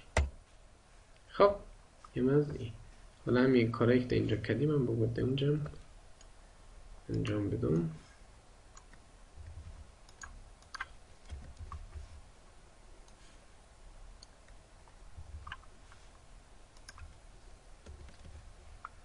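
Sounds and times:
faint low rumbles: 0:00.0 - 0:19.0
mouse and keyboard clicks: 0:15.3 - 0:15.7, 0:16.8 - 0:17.1.

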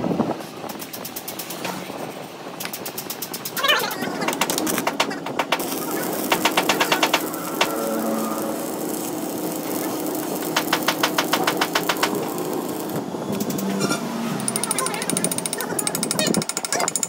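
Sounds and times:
arc welding sizzle: 0:02.6 - 0:13.8
rapid knocking: 0:02.9 - 0:07.8, 0:10.6 - 0:12.2.

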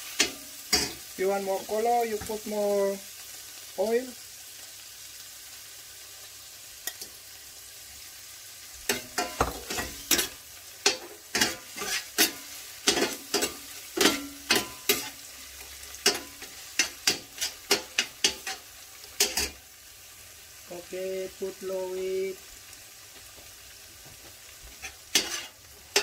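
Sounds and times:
metal spoon scraping a pan: 0:00.0 - 0:01.1, 0:08.9 - 0:19.6, 0:24.7 - 0:26.0
crab meat sizzling in oil: 0:00.0 - 0:26.0.

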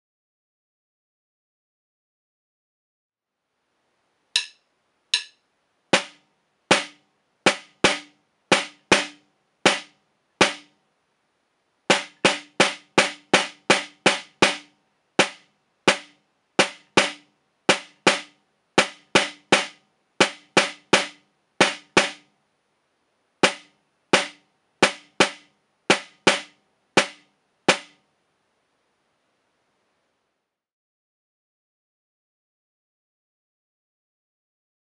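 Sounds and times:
snare drum strokes: 0:05.2 - 0:10.7, 0:11.9 - 0:22.3, 0:23.4 - 0:28.0.

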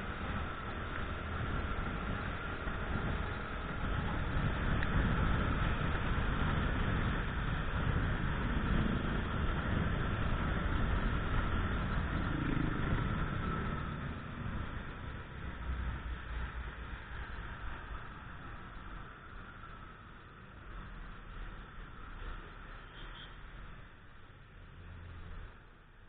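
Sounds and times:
wind rushing over microphone: 0:00.0 - 0:22.0
road noise: 0:00.0 - 0:26.0
motorcycle engine: 0:01.2 - 0:15.4.

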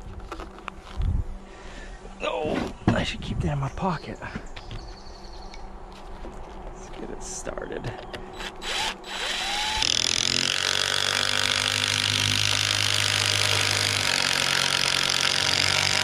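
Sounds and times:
cordless drill whining: 0:08.3 - 0:16.0.

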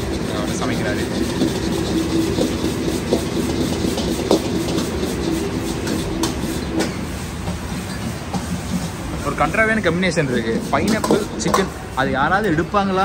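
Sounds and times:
ladle clinking against wok: 0:00.0 - 0:09.0, 0:10.5 - 0:11.8
food stir-fried in a wok: 0:00.0 - 0:13.0
gas burner rushing: 0:00.0 - 0:13.0.

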